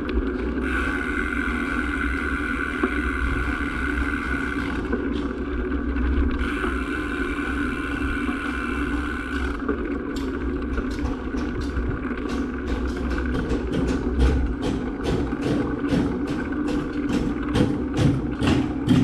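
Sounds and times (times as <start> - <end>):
small engine running: 0.0 - 19.0.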